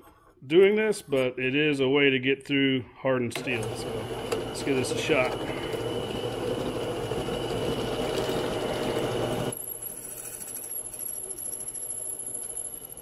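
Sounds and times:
drill press grinding hum: 3.3 - 13.0
thin high whine: 3.4 - 13.0.

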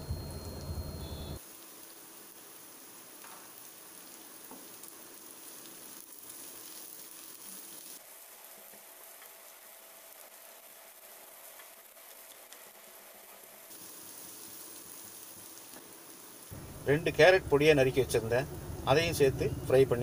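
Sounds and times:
vegetables sizzling in a pan: 1.4 - 16.8.

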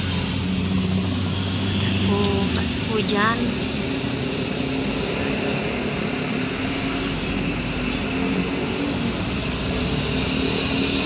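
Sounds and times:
car engine hum and road noise: 0.0 - 10.8.

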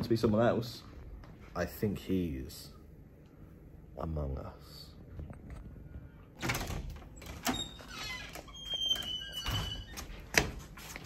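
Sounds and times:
door hinge squeak: 6.4 - 10.2.

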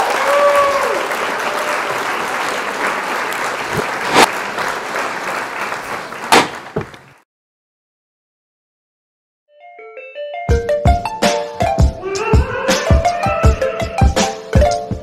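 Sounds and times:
crowd applause: 0.0 - 7.2
loud sharp knocks: 6.3 - 7.0.

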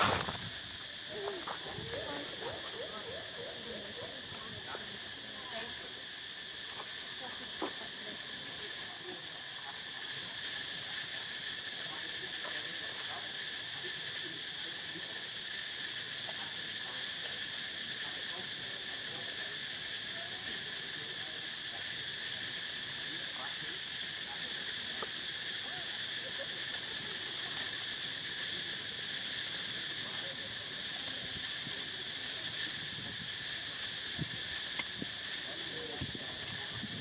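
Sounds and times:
insect chorus drone: 0.0 - 37.0.

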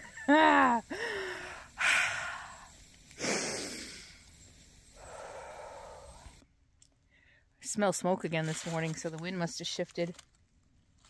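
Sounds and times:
person breathing noisily: 0.8 - 4.3, 4.9 - 6.4.

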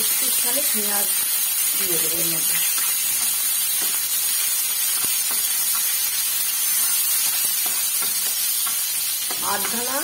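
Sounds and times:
onion sizzling in oil: 0.0 - 10.0
spatula tapping and scraping: 2.6 - 10.0.

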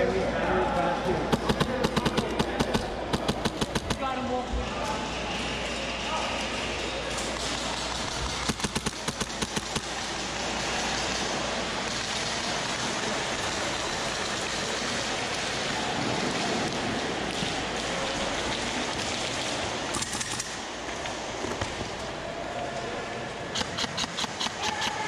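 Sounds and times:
airsoft gun shots: 1.3 - 4.1, 8.4 - 9.9.

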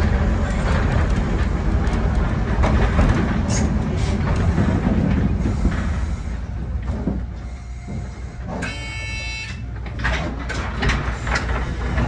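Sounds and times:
tram running low rumble: 0.0 - 12.0
tram horn: 7.6 - 9.7.

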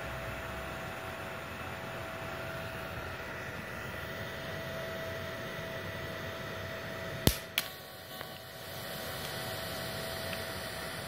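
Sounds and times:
welder hiss and hum: 1.9 - 11.0
sharp crack of arc strike: 7.3 - 7.7.

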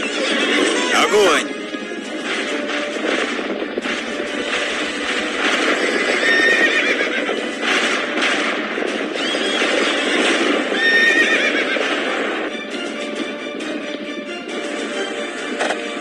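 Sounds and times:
galloping horses rumble: 0.0 - 0.9, 1.5 - 15.7
horses neighing: 0.0 - 1.5, 5.4 - 8.1, 9.0 - 12.5.

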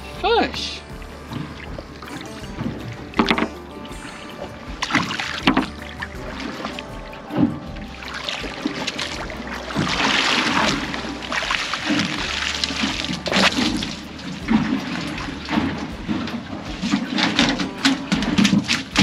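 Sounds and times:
water splashing: 0.0 - 19.0
fish knocking on metal deck: 1.6 - 4.1.

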